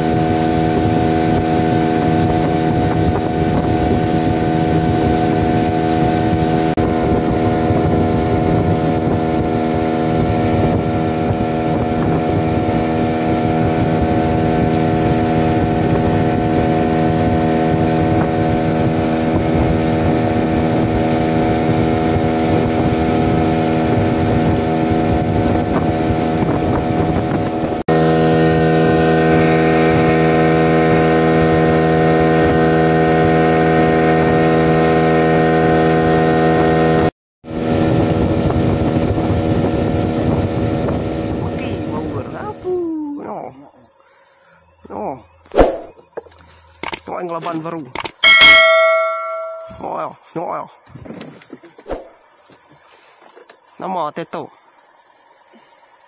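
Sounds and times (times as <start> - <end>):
wind on microphone: 0.0 - 35.2, 36.3 - 43.1
outboard motor running: 0.0 - 43.6.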